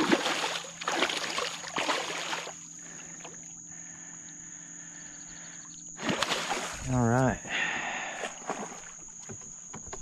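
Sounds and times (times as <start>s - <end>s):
fish splashing in water: 0.0s - 2.6s, 6.0s - 6.9s.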